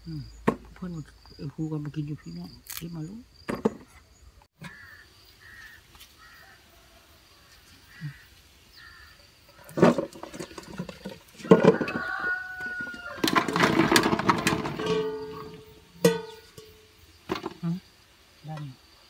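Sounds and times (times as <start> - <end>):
faint chirps: 0.0 - 3.3
metal cookware clattering: 13.2 - 17.4.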